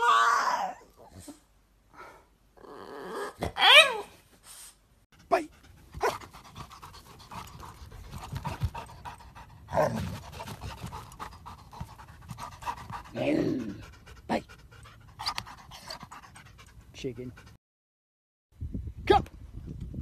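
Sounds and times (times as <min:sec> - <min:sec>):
dog panting: 0:05.2 - 0:17.6.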